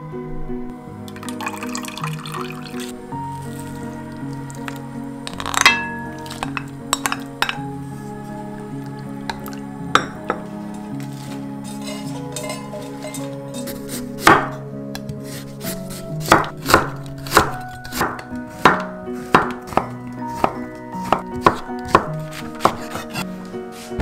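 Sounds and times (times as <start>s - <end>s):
knife cutting on wooden board: 15.2s - 23.3s.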